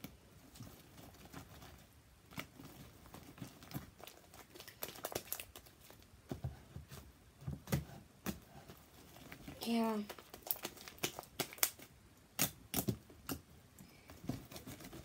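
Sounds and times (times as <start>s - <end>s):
sticky slime snapping and crackling: 3.4s - 6.0s, 9.6s - 13.5s.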